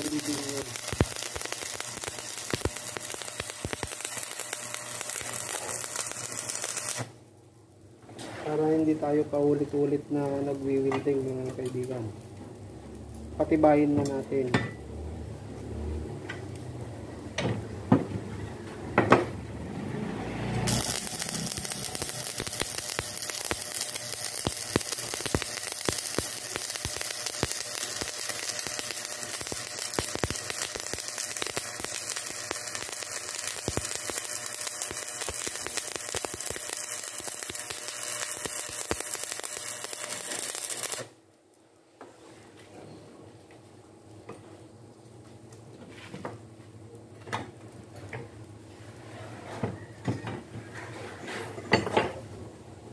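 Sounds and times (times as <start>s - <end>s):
welding arc crackling and sizzling: 0.0s - 17.4s, 19.7s - 41.5s.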